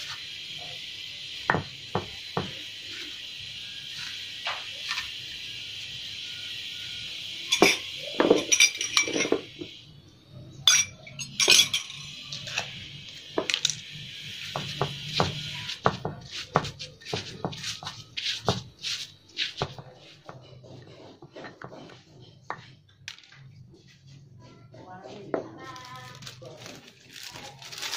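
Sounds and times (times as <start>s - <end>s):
stone pestle grinding in mortar: 19.4s - 22.8s.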